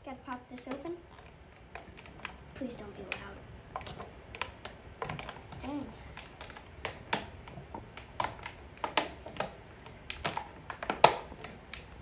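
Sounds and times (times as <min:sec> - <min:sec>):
plastic container clicking and crackling: 0:03.0 - 0:12.0
plastic snapping: 0:03.1 - 0:12.0.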